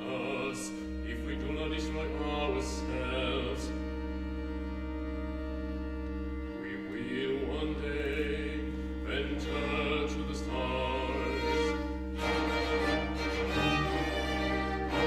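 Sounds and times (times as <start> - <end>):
sung voices with vibrato: 0.0 - 4.2, 6.5 - 15.0
bowed strings chords: 0.0 - 15.0
low sustained bass: 0.0 - 15.0
organ chords: 0.0 - 15.0.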